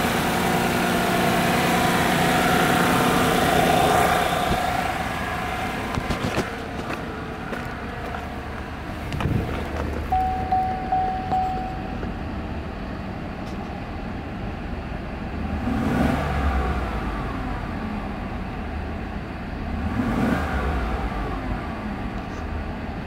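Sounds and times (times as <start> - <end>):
truck engine idling: 0.0 - 15.6
warning chime pulsing: 10.1 - 12.2.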